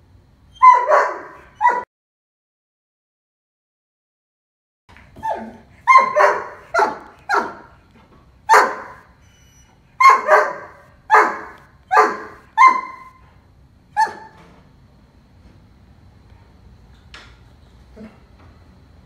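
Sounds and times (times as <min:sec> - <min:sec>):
dog barking: 0:00.6 - 0:01.9, 0:05.2 - 0:07.8, 0:08.5 - 0:09.1, 0:10.0 - 0:13.2, 0:14.0 - 0:14.4.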